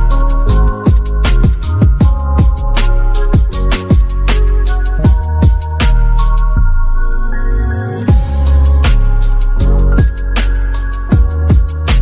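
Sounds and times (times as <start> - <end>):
electronic music with synth chords: 0.0 - 12.0
deep drum hit: 8.1 - 9.0.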